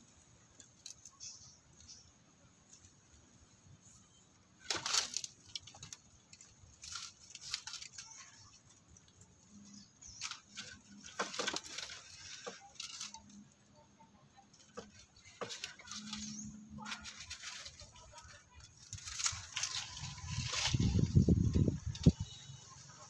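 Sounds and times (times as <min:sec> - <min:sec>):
fur rustling and crackly clicks: 0:04.6 - 0:22.1.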